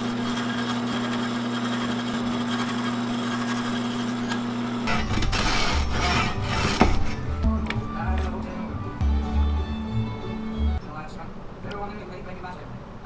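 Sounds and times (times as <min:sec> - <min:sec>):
scroll saw motor hum: 0:00.0 - 0:07.2
sander grinding wood: 0:00.0 - 0:07.3.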